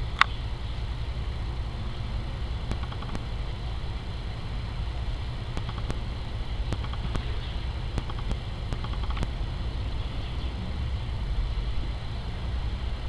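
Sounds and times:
steady low rumble: 0.0s - 13.0s
bird beak tapping on nut: 2.7s - 3.2s, 5.5s - 6.0s, 6.7s - 7.3s, 8.0s - 9.3s.

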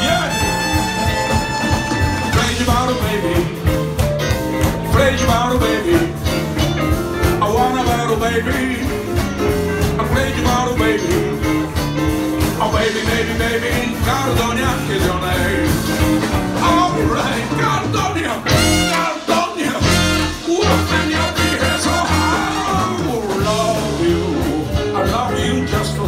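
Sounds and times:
person singing: 0.0s - 4.0s, 4.7s - 6.5s, 7.3s - 11.6s, 16.6s - 26.0s
bass line: 0.0s - 26.0s
jump blues band playing: 0.0s - 26.0s.

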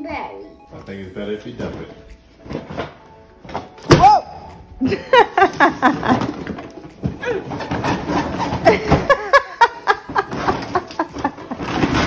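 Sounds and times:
cardboard box scraping: 7.5s - 8.8s.

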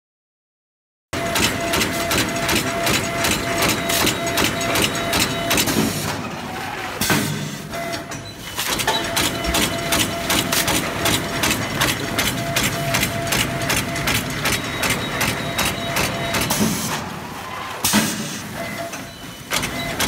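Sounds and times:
machine clicking rapidly: 1.2s - 5.8s, 8.6s - 16.6s.

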